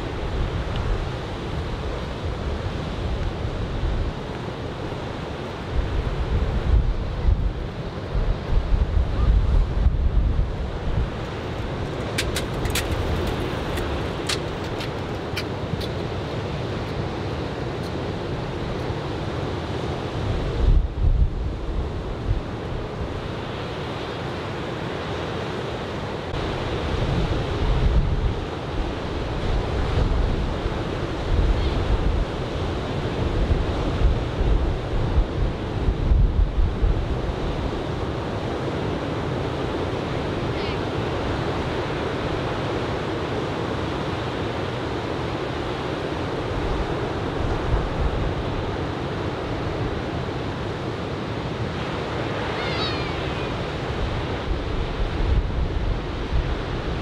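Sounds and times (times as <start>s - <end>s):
wind buffeting microphone: 5.7s - 18.8s, 26.3s - 39.0s, 53.3s - 57.0s.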